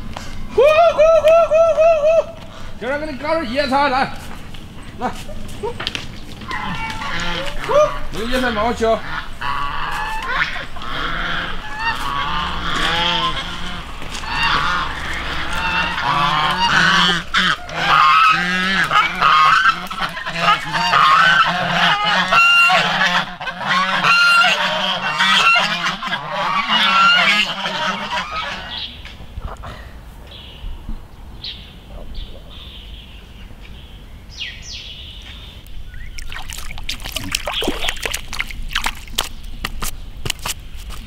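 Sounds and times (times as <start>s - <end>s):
geese honking: 6.4s - 29.7s.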